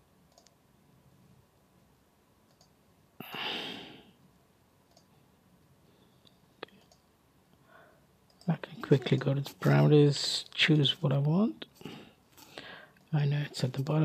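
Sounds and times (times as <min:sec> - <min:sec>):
computer mouse clicks: 0:00.3 - 0:00.6, 0:02.5 - 0:02.8, 0:04.9 - 0:05.1, 0:06.6 - 0:07.1
breathy exhale: 0:03.2 - 0:04.1, 0:11.8 - 0:13.0.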